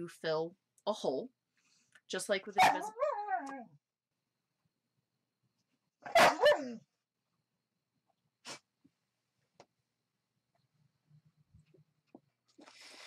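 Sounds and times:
dog barking: 2.6s - 3.1s, 6.0s - 6.8s.

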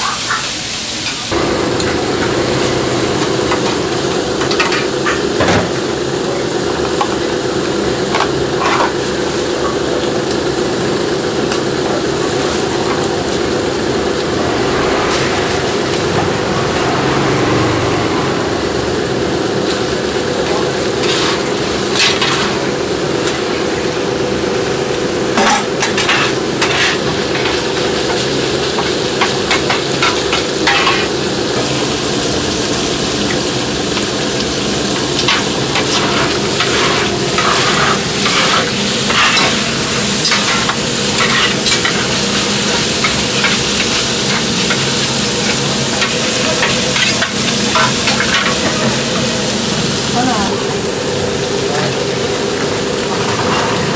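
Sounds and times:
food sizzling on a griddle: 0.0s - 53.9s
metal spatula scraping a griddle: 8.6s - 9.0s, 21.0s - 22.6s, 25.4s - 27.6s, 29.5s - 31.1s, 35.2s - 42.2s.

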